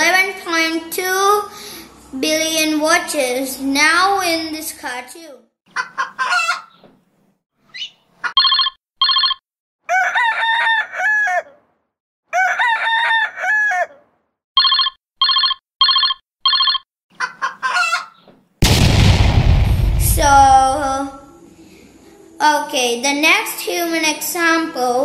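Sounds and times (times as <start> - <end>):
loud crash: 18.6 - 21.3.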